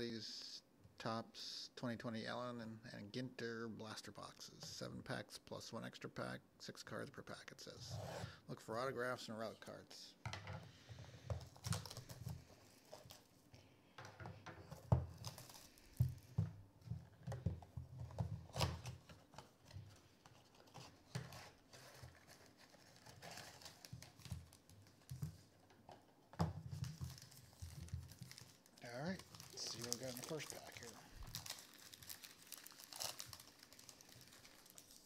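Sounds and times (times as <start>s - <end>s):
cardboard tearing: 20.7s - 24.5s, 27.1s - 35.0s
packs rustling: 26.7s - 35.0s.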